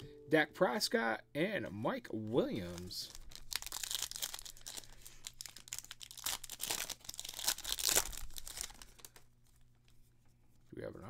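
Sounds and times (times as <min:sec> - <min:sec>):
wrapper tearing and crinkling: 0:02.4 - 0:09.6.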